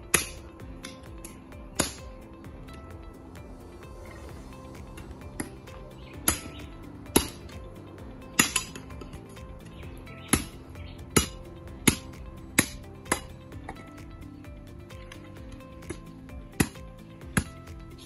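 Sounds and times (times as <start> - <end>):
machete chopping sticks: 0.0 - 2.1, 4.9 - 7.6, 8.3 - 13.8, 15.0 - 18.0
background music: 0.0 - 18.0.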